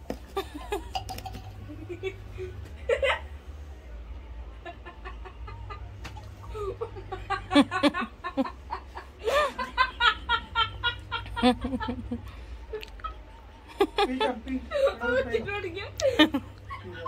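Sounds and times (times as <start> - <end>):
low steady hum: 0.0 - 17.0
people laughing: 0.3 - 3.5, 4.5 - 17.0.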